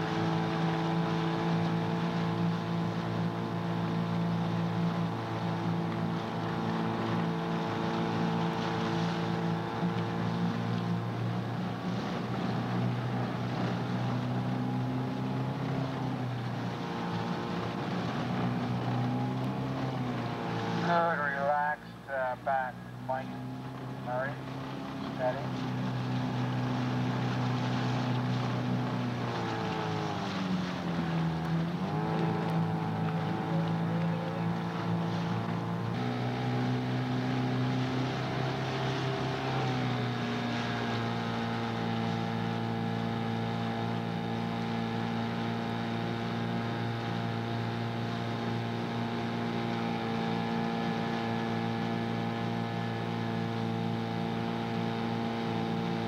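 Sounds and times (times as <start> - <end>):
outboard motor running: 0.0 - 56.0.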